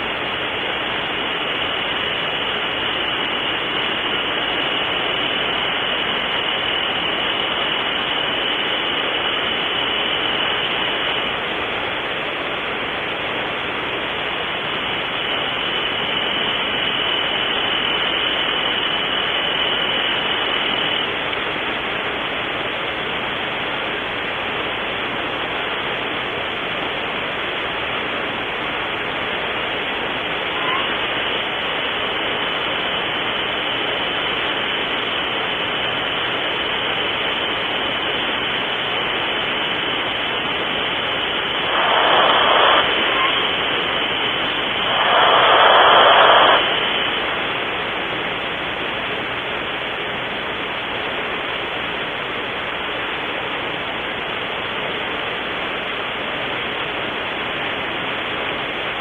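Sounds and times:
rough burst of noise: 0.0s - 54.8s
faint high whine: 0.0s - 59.0s
static hiss: 0.0s - 59.0s.

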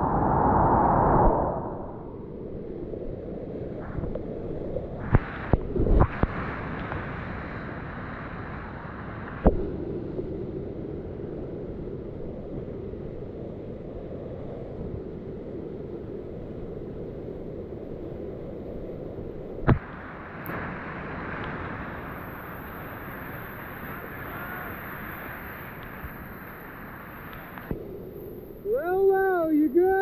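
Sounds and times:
whitewater rapids churning: 19.8s - 27.7s.

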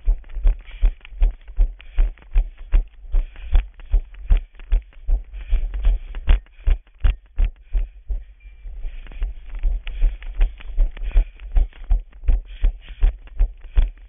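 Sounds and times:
running footsteps thudding: 0.0s - 14.0s.

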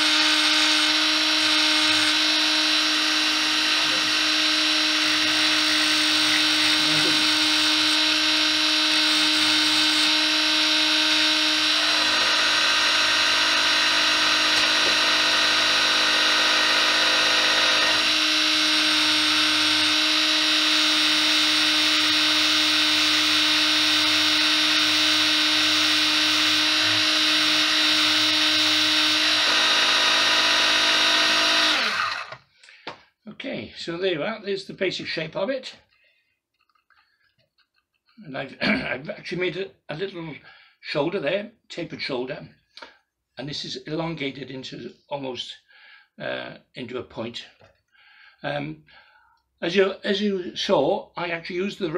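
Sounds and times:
lathe motor whine: 0.0s - 32.4s.

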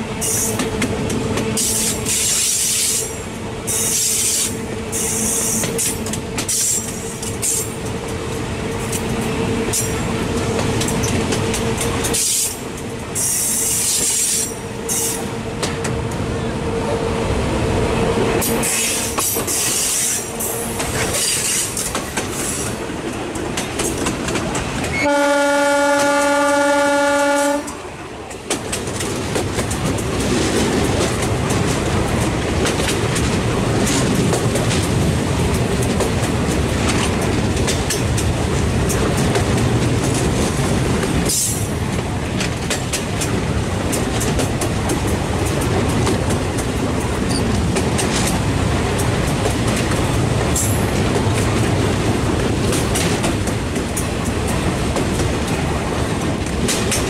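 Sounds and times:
train rumbling: 0.0s - 57.0s
wheels clacking on rail joints: 0.2s - 16.5s, 18.4s - 57.0s
locomotive horn: 24.9s - 28.1s.

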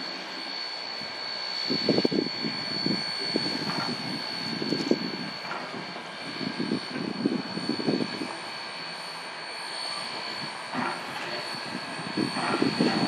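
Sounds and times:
wind gusting on microphone: 1.7s - 8.3s, 11.5s - 13.0s.

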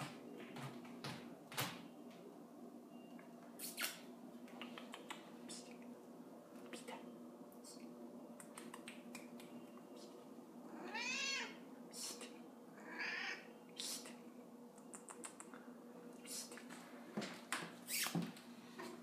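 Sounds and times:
cat meowing: 10.7s - 11.6s, 12.8s - 13.5s.

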